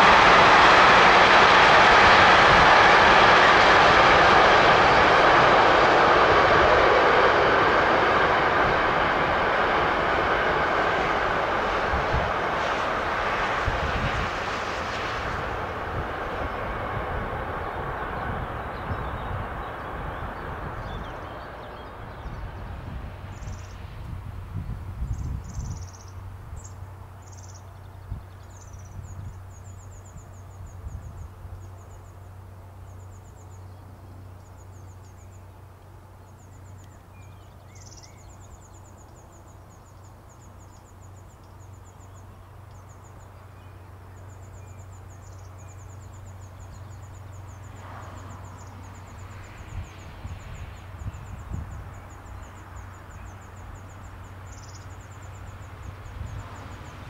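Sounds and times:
steady low rumble: 0.0 - 27.3.

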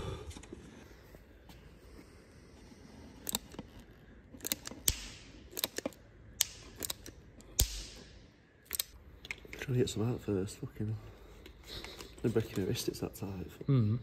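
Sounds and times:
sealant gun trigger clicking: 8.7 - 9.0.

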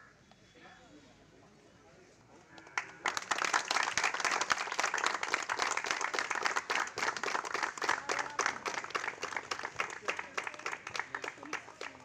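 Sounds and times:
people clapping: 2.6 - 12.0.

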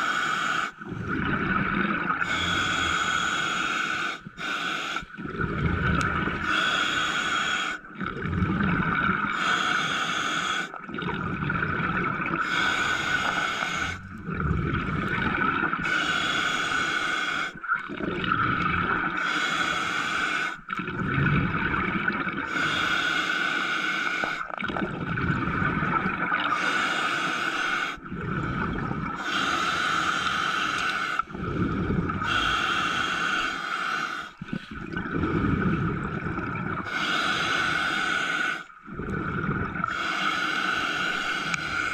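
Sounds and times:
bubbling breath: 0.0 - 41.9
diver breathing underwater: 0.0 - 41.9.

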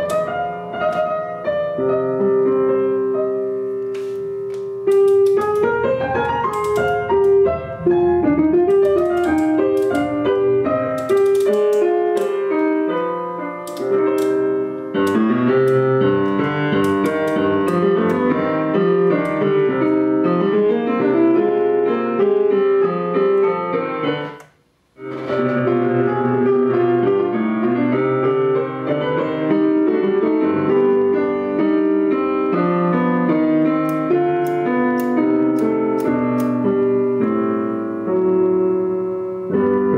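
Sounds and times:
piano music from loudspeakers: 0.0 - 39.9.

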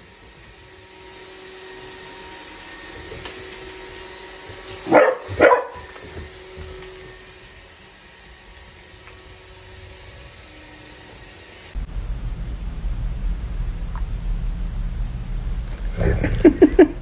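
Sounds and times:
robot vacuum humming: 0.0 - 17.0
puppy barking: 4.8 - 6.0.

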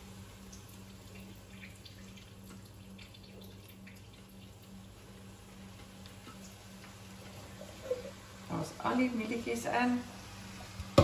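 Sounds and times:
liquid trickling into metal sink: 0.5 - 5.2.

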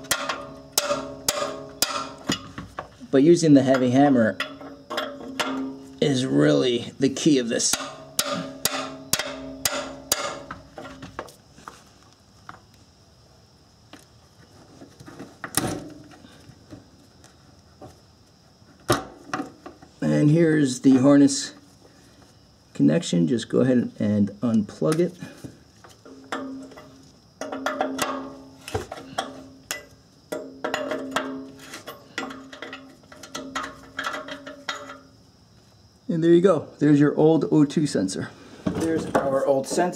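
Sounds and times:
hammer striking metal wrench: 0.0 - 2.5, 7.6 - 10.7.

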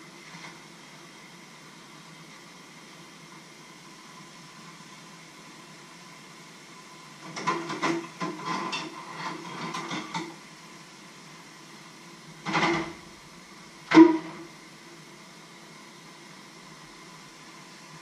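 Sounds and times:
dishes clattering in a sink: 7.4 - 10.4.

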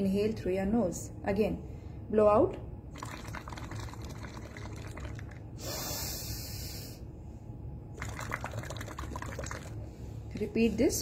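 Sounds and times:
bubbling through straw in water: 2.9 - 5.6, 7.9 - 10.6
hissing breath in: 5.6 - 7.1.

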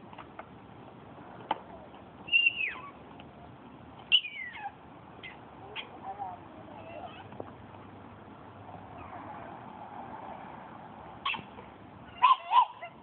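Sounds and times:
puppy whining yelps: 2.3 - 3.0, 4.1 - 6.0, 6.7 - 7.4, 8.9 - 9.3, 11.2 - 13.0.

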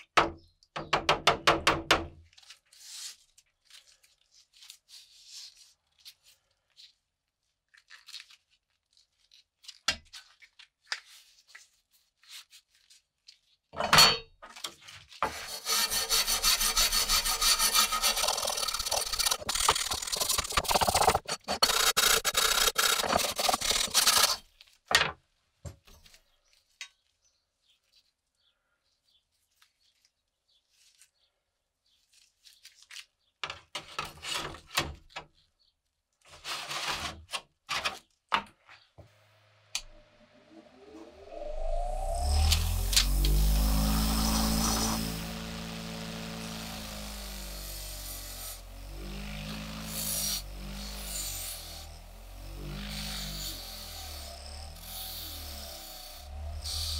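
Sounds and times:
wire brush scrubbing metal: 15.2 - 24.4, 41.1 - 56.9.

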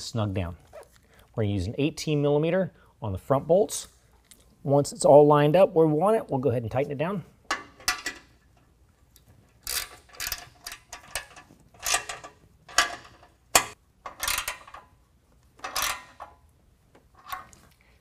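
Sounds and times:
hand ratchet clicking: 9.6 - 14.8, 15.6 - 16.3.

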